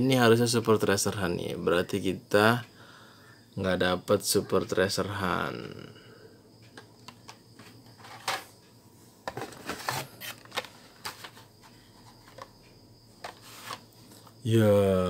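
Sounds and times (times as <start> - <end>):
plastic packaging clicks and taps: 6.8 - 7.7.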